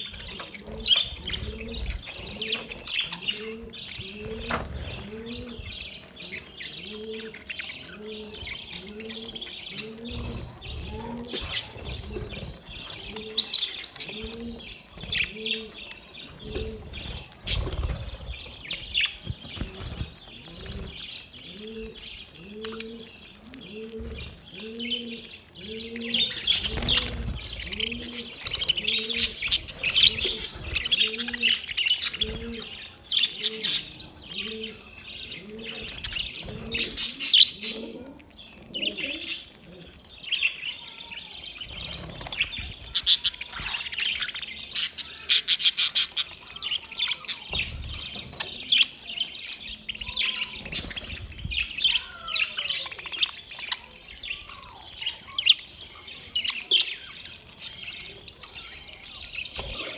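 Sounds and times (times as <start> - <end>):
budgerigars chattering and chirping: 0.0 - 59.9
low cooing: 0.4 - 12.4, 21.5 - 27.1, 36.4 - 40.0.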